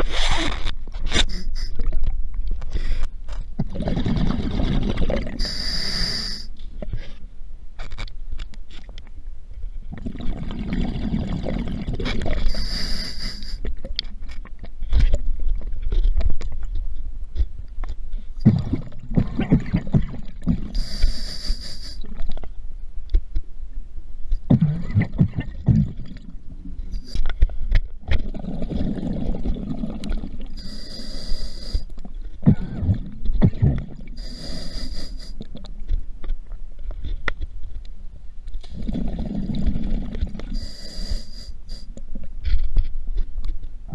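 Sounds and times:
regulator inhale hiss: 1.2s - 1.8s, 5.4s - 6.6s, 12.5s - 13.6s, 20.8s - 22.1s, 26.9s - 27.2s, 30.6s - 31.9s, 34.2s - 35.4s, 40.5s - 42.0s
gurgling exhaust bubbles: 3.6s - 5.4s, 9.9s - 12.5s, 28.2s - 30.6s, 32.4s - 34.2s, 38.7s - 40.6s.

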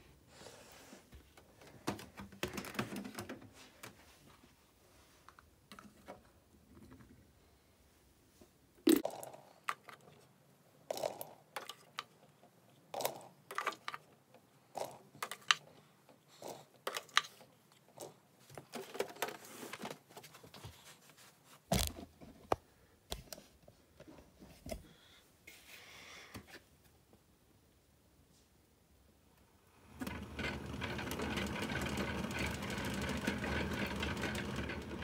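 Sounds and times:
plastic toy clicks and rattles: 10.9s - 12.3s, 12.9s - 15.7s, 16.5s - 19.4s, 30.0s - 35.0s.

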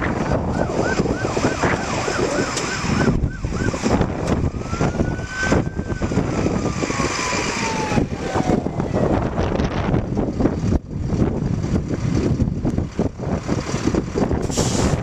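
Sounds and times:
fire truck siren: 0.0s - 10.3s
wind noise on microphone: 0.0s - 15.0s.

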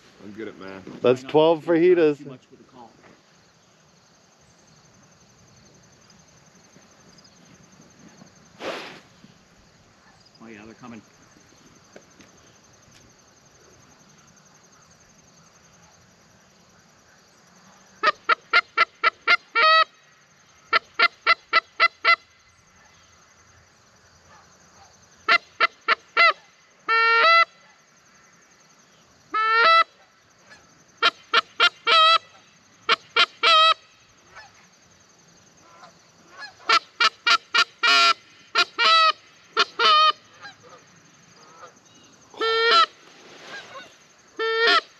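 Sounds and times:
goose call honking: 18.0s - 19.9s, 25.3s - 27.5s, 29.4s - 34.6s, 35.6s - 41.8s, 42.4s - 44.9s.

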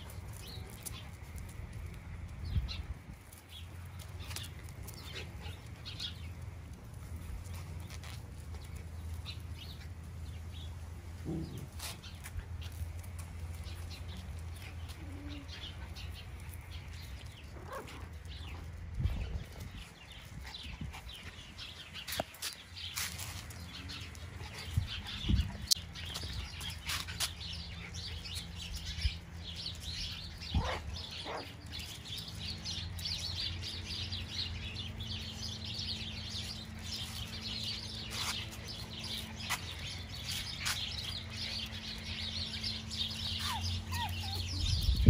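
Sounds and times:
dogs scuffling: 0.0s - 44.9s
puppies squeaking: 42.5s - 45.0s.

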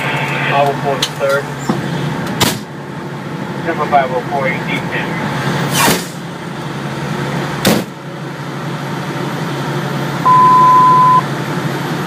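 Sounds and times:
fire truck engine idling: 0.0s - 12.0s
loud electronic beep: 10.2s - 11.2s.

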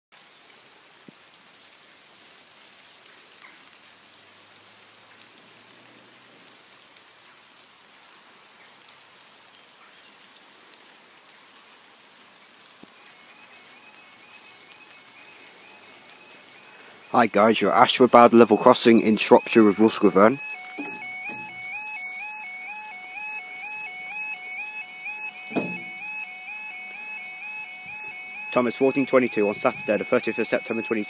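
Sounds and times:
faint outdoor hiss: 0.2s - 31.0s
crossing alarm repeating tone: 13.0s - 31.0s
distant train rumble: 15.5s - 22.4s.

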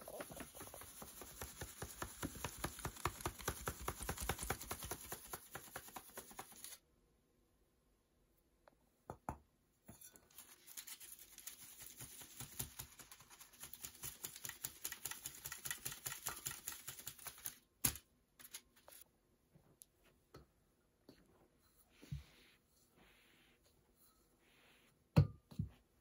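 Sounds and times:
sieve rasping while sifting flour: 0.0s - 6.8s, 10.0s - 17.6s
small scraping sounds: 9.9s - 14.5s, 18.4s - 19.1s.

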